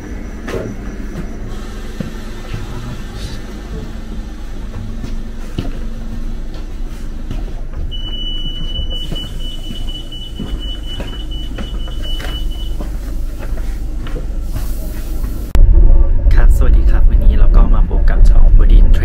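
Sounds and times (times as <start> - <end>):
train carriage rumble: 0.0 - 19.0.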